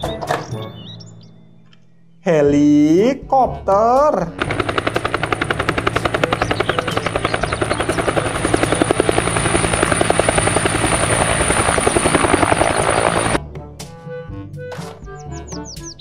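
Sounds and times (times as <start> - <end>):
helicopter rotor blade slap: 4.4 - 13.4
turbine whine: 4.4 - 13.4
light chiming music: 4.6 - 13.4.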